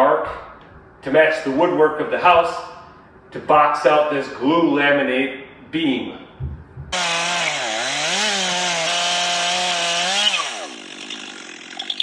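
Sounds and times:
chainsaw running at high revs: 7.0s - 12.0s.

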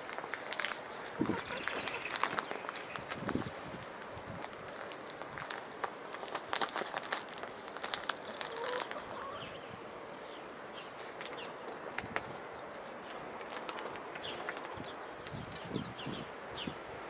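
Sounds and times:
hen call: 1.0s - 3.0s.

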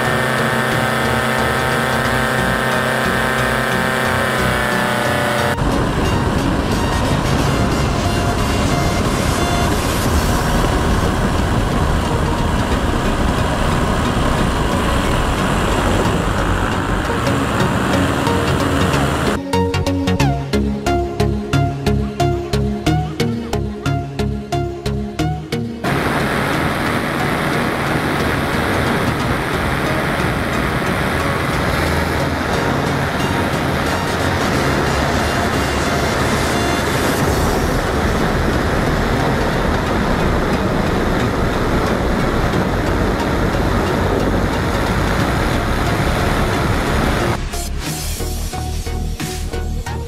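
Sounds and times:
paramotor engine running: 0.0s - 19.4s, 25.8s - 47.5s
music with a beat: 4.8s - 25.9s, 31.5s - 50.0s
wind buffeting microphone: 5.6s - 19.4s, 25.8s - 47.4s.

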